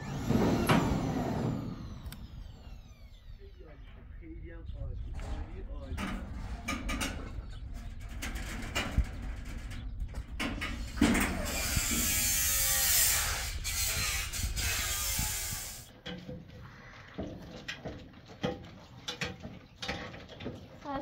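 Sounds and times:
power tool running: 0:00.0 - 0:03.6, 0:10.7 - 0:15.9
clicks and knocks on metal roof: 0:05.2 - 0:11.4.

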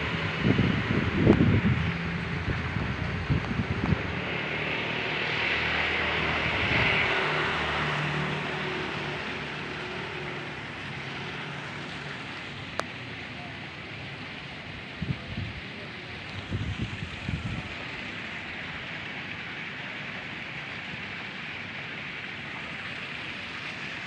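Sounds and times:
wind on microphone: 0:00.0 - 0:08.8, 0:14.9 - 0:15.7, 0:16.3 - 0:18.1
distant aircraft passing: 0:00.0 - 0:14.6.

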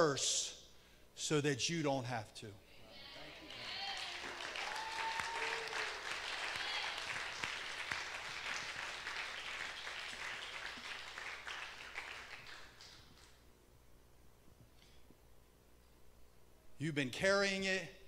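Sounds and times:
congregation applauding: 0:03.4 - 0:13.4.

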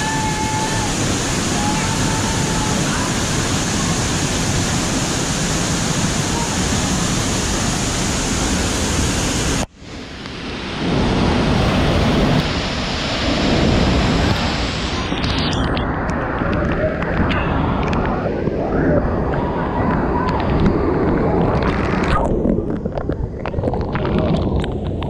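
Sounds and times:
waterfall roaring: 0:00.0 - 0:18.4.

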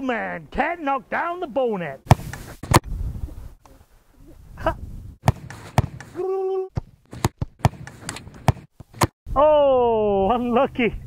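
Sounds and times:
soccer ball being kicked: 0:02.1 - 0:02.8, 0:05.2 - 0:06.2, 0:06.8 - 0:09.2.

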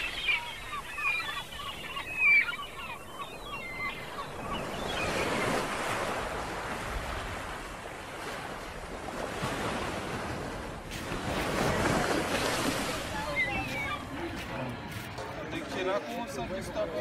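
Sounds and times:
small birds chirping: 0:00.0 - 0:05.7, 0:12.4 - 0:14.6.

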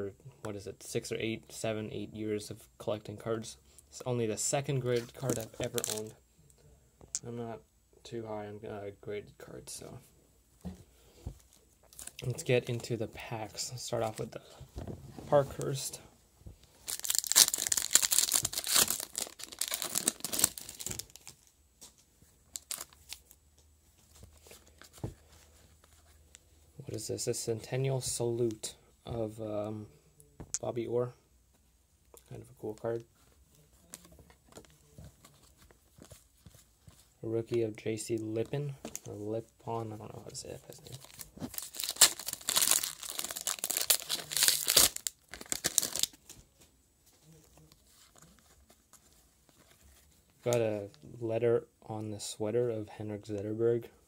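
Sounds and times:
wrapper tearing and crinkling: 0:05.2 - 0:06.1, 0:16.8 - 0:21.5, 0:22.5 - 0:23.4, 0:40.8 - 0:46.4.

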